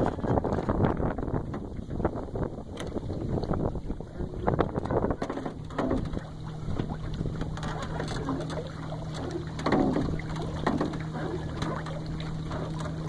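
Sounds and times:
wind gusting on microphone: 0.0 - 8.5
water lapping around boat: 0.0 - 13.0.

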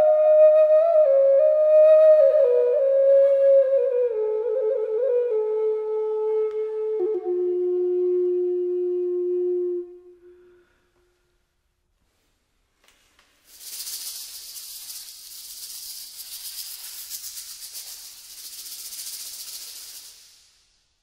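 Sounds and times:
dry high rattle: 13.4 - 20.8.

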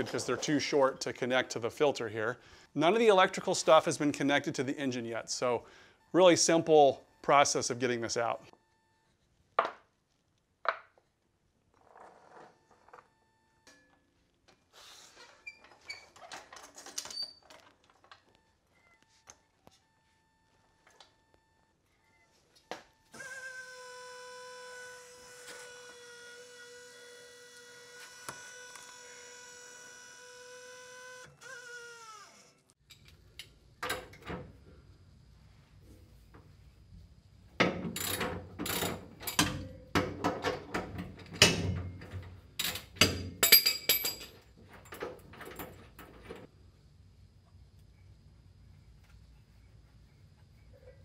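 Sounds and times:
tools clanking on metal: 37.6 - 46.4.

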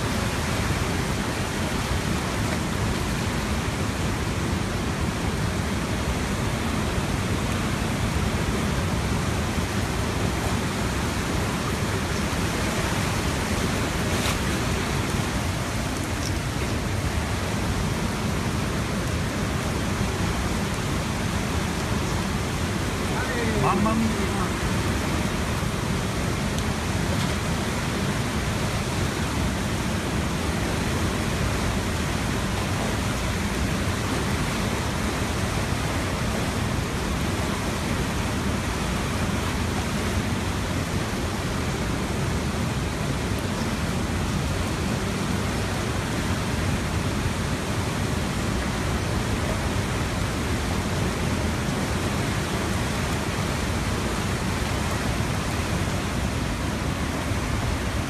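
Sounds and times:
floodwater rushing: 0.0 - 58.0.

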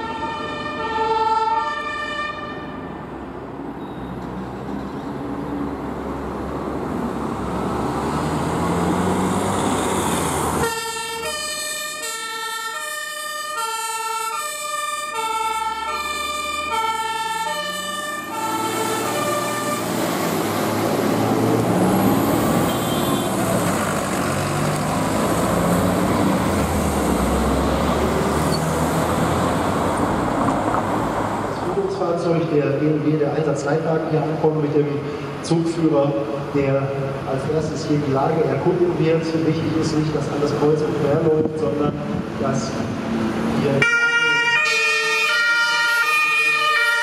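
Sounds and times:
two-tone emergency siren: 0.0 - 3.0, 10.0 - 20.2, 43.8 - 47.0
heavy vehicle engine: 2.5 - 12.2, 15.0 - 43.9.

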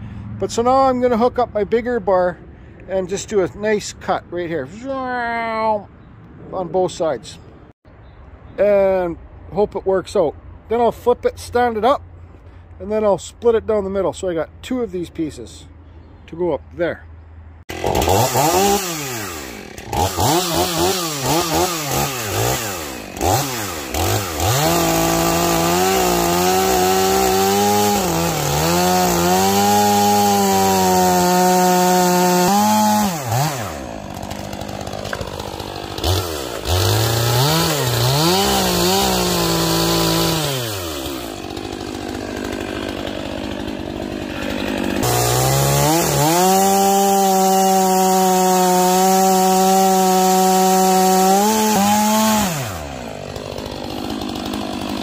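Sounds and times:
chainsaw cutting wood: 17.6 - 55.0
chainsaw revving: 17.6 - 55.0.

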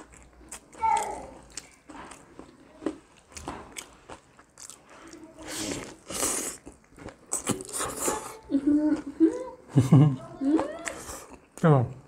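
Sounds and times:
chewing and crunching burger: 0.0 - 8.3.

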